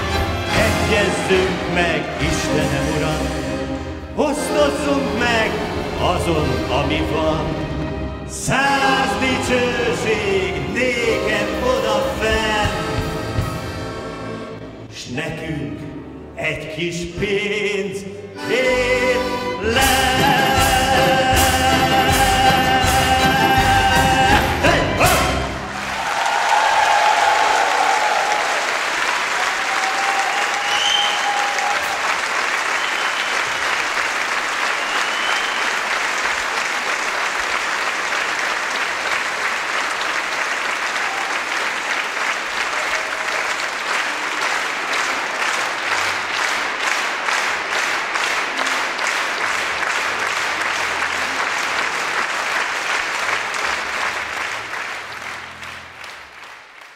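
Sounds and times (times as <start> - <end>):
rhythmic clapping in unison: 18.5 - 56.9
large audience applauding: 20.2 - 56.9.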